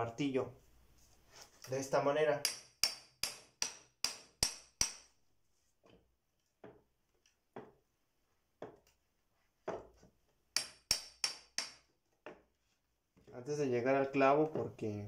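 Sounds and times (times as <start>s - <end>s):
hammer striking hatchet head: 2.4s - 5.1s, 10.6s - 11.8s.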